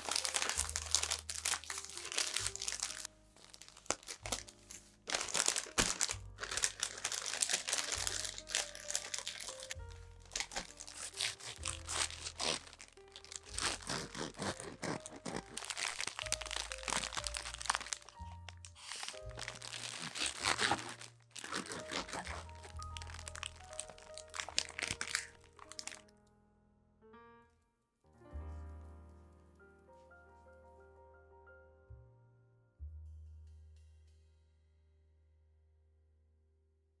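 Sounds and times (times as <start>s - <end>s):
paper crinkling and rustling: 0.0s - 26.0s
gentle piano music: 0.0s - 33.8s
bread knife sawing sandwich: 13.6s - 15.5s.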